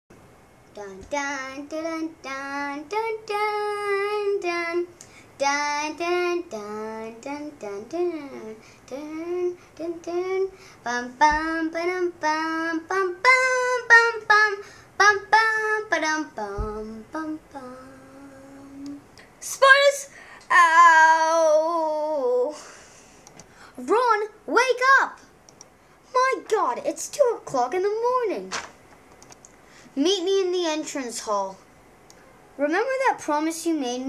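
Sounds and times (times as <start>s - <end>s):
child singing unaccompanied: 0.7s - 22.6s.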